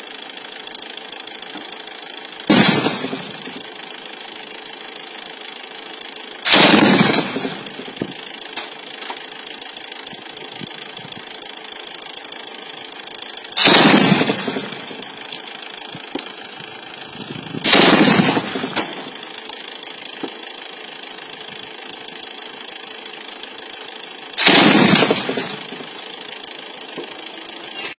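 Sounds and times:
gunshots: 2.5 - 3.4, 6.5 - 7.7, 13.6 - 16.4, 17.6 - 19.1, 24.4 - 25.9.

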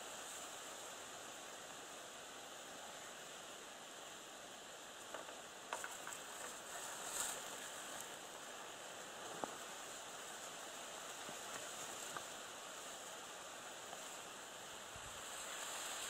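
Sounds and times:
faint outdoor hiss by water: 0.0 - 16.0
small ticks: 5.0 - 8.2, 11.0 - 12.4.

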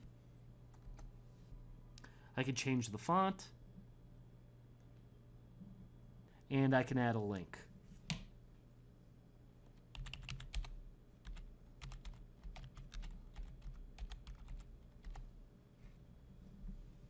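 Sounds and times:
computer keyboard typing: 0.7 - 1.1, 9.8 - 15.3.

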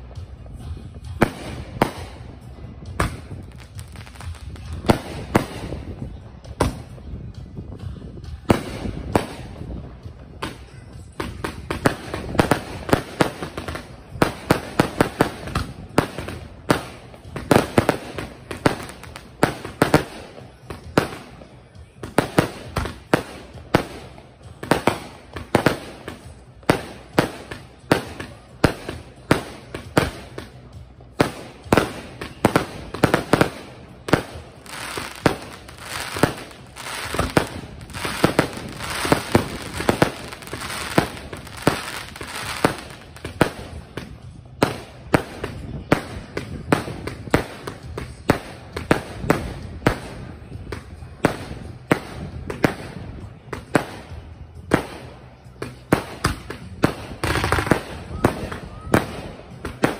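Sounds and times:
crackling firework breaks: 31.2 - 43.6
firework shells banging: 31.6 - 43.6.

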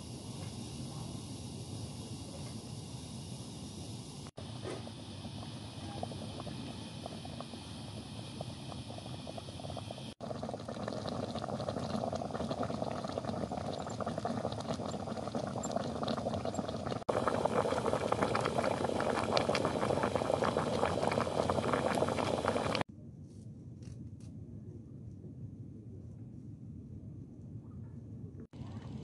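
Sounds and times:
water boiling in a pot: 0.0 - 22.9.

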